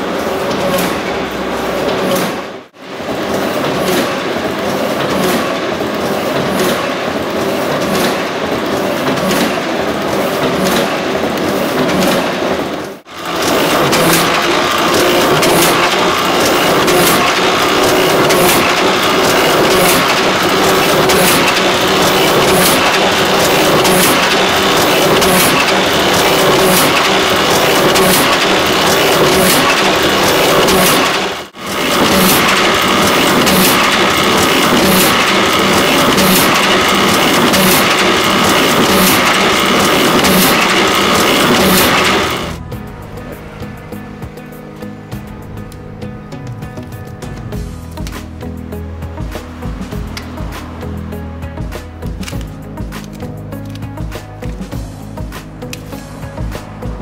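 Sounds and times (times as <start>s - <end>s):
die-cutting press clattering: 0.0s - 42.6s.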